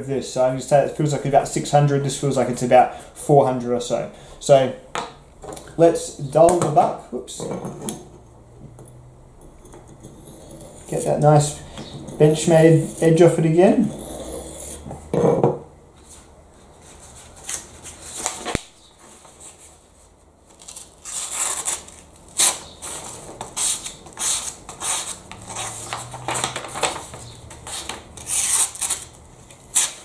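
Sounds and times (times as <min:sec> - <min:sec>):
knife tearing paper: 0:20.6 - 0:26.2, 0:27.6 - 0:30.0.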